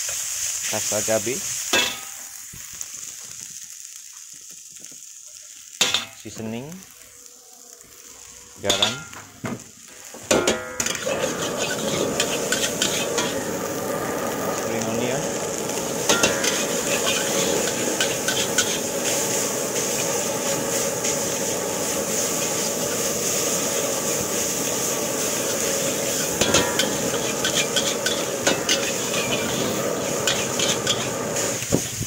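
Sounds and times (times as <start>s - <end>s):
rice sizzling in wok: 0.0s - 32.0s
metal spatula scraping and clacking: 10.3s - 13.4s, 16.1s - 18.8s, 26.1s - 29.6s, 30.2s - 31.1s.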